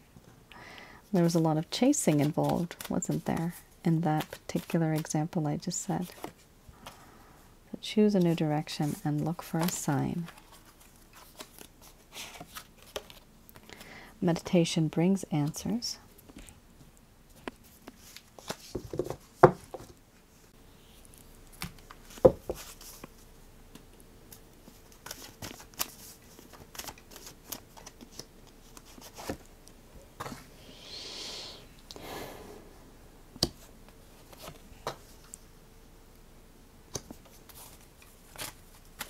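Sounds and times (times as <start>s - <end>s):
faint steady hum: 0.0s - 39.0s
cards shuffling: 1.3s - 5.2s, 17.4s - 19.9s, 24.6s - 29.5s.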